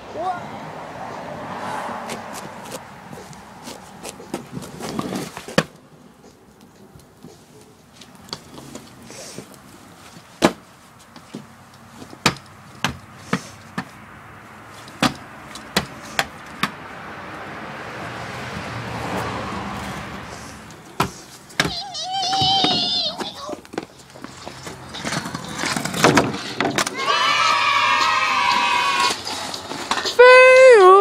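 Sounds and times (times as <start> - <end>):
kick scooter clattering on asphalt: 2.0 - 5.9, 6.7 - 14.0, 14.7 - 16.8, 19.7 - 30.6.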